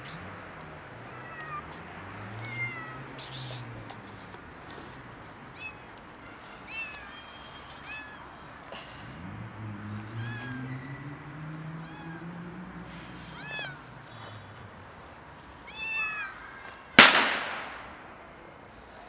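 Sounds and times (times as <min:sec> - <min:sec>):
cat meowing: 0:01.0 - 0:03.6, 0:07.8 - 0:08.3, 0:10.2 - 0:10.9, 0:11.6 - 0:12.4, 0:13.2 - 0:14.4, 0:15.6 - 0:16.6
sharp loud bang: 0:17.0 - 0:18.0.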